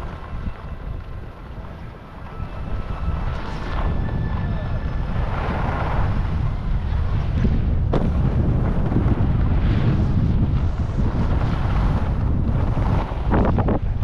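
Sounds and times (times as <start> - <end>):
wind buffeting microphone: 0.0 - 14.0
snow scraping under board: 2.8 - 14.0.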